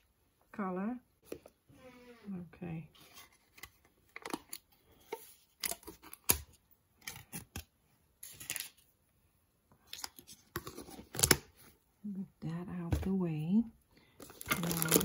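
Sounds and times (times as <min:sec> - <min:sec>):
plastic packaging crinkling: 0:14.2 - 0:15.0.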